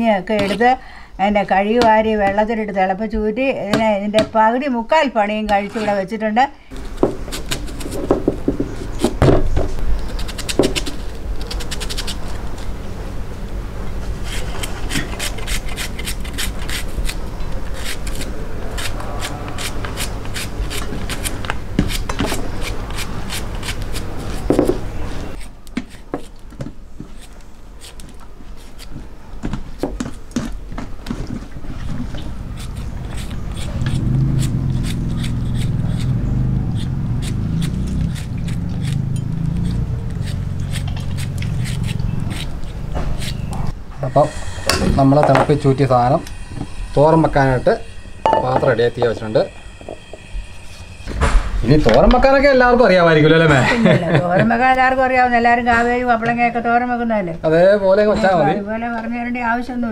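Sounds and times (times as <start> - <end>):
knife slicing onion: 32.5 - 43.6.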